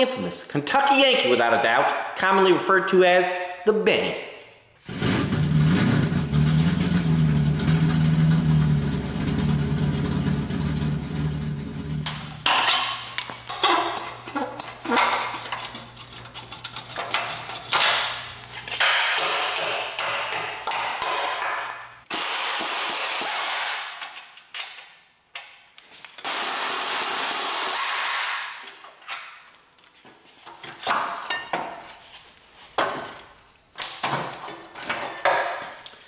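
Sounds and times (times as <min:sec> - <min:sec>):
tools clanking on metal: 0:12.0 - 0:20.4, 0:28.7 - 0:32.0, 0:34.0 - 0:36.0.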